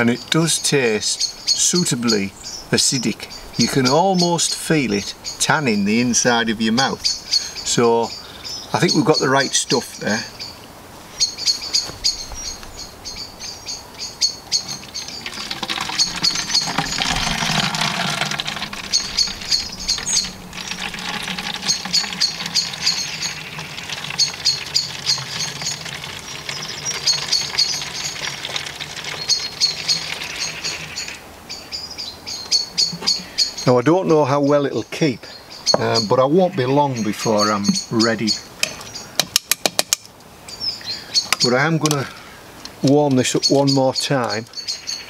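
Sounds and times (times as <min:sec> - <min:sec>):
small bird chirping: 0:04.9 - 0:39.2
liquid trickling into bottle: 0:14.6 - 0:31.2.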